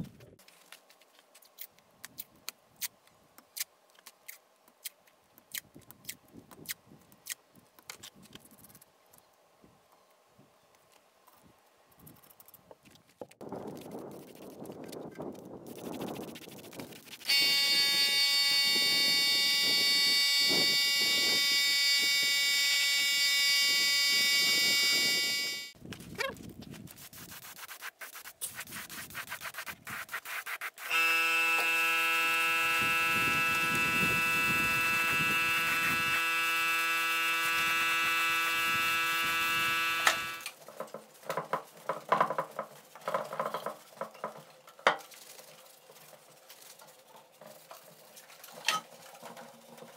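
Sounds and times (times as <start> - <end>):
spray gun spraying paint: 27.0 - 40.5.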